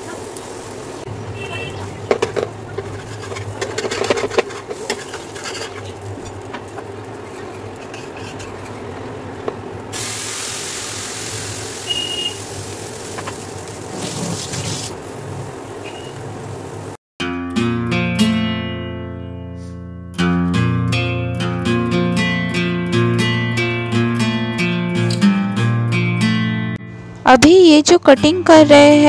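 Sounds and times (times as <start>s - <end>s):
batter sizzling on hot pan: 0.0s - 8.8s, 9.9s - 17.0s
metal spatula scraping a pan: 2.1s - 6.4s, 7.2s - 8.9s.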